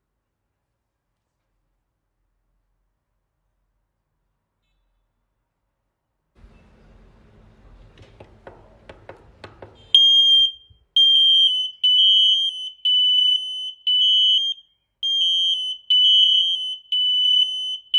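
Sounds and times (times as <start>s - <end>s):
smoke alarm beeping: 10.0s - 17.9s.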